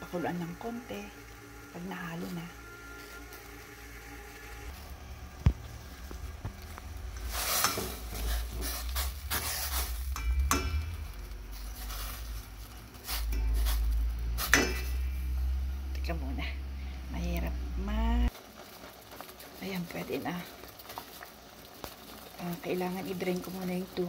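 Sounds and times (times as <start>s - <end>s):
low rumble: 4.2s - 18.3s
tongs clinking against steel pot: 10.1s - 11.0s, 14.4s - 15.0s.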